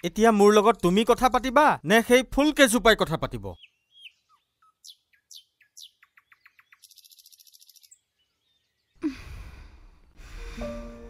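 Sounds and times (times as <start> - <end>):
small birds chirping: 3.1 - 9.1.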